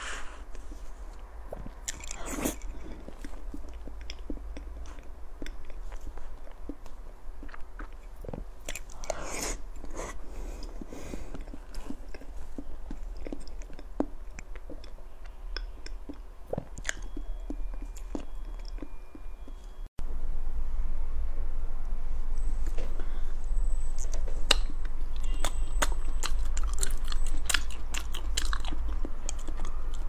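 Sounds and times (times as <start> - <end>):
chewing with mouth clicks: 0.5 - 19.9, 24.0 - 30.0.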